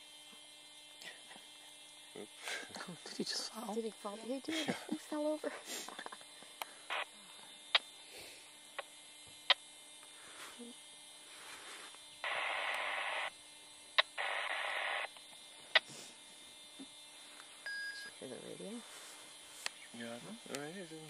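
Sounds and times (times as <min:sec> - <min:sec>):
faint steady hum: 0:00.0 - 0:21.0
two-way radio static bursts: 0:05.7 - 0:07.9, 0:11.4 - 0:13.4, 0:14.0 - 0:16.1.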